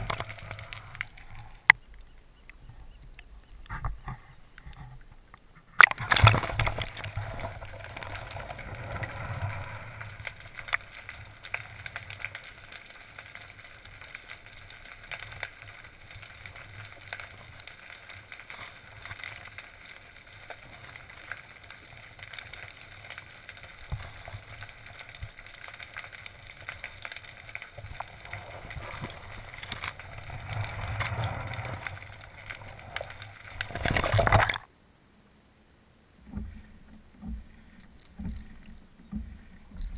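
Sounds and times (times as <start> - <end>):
muffled underwater rushing: 5.7 - 34.7.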